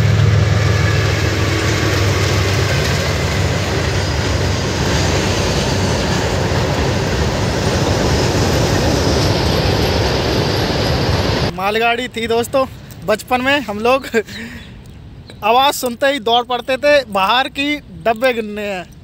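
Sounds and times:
locomotive engine drone: 0.0 - 11.6
freight train rumble and clatter: 0.0 - 14.1.

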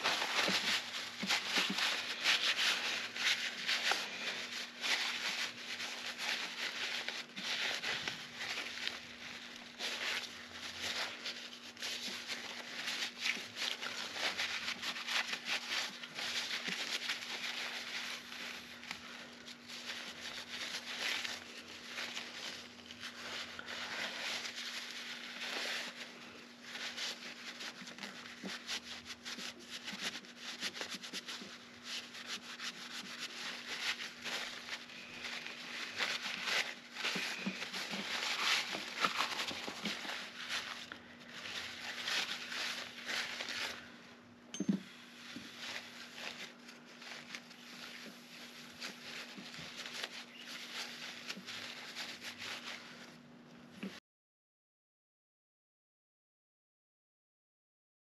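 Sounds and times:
paper towel rubbing metal: 0.0 - 44.0, 45.0 - 54.0.

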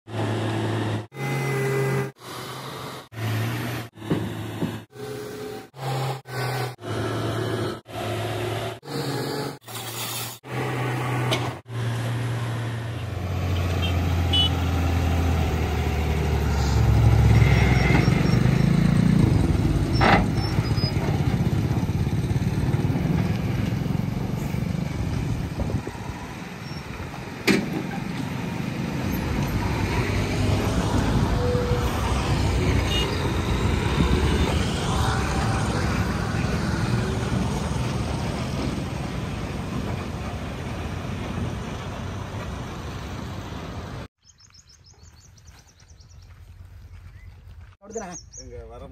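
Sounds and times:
sharp knocks: 4.0 - 4.9
diesel truck engine under load: 10.6 - 44.1.

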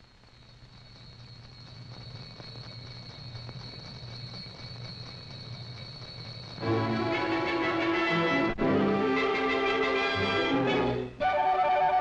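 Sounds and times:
low hum with crackle: 0.0 - 6.7
faint high whine: 0.0 - 12.0.

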